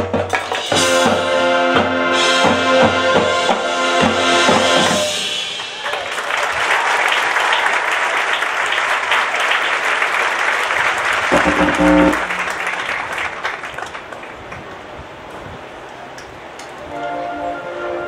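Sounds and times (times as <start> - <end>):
marching band brass and drums: 0.0 - 5.8, 11.3 - 12.8
audience applauding: 5.6 - 14.7
short pitched note: 11.3 - 12.6.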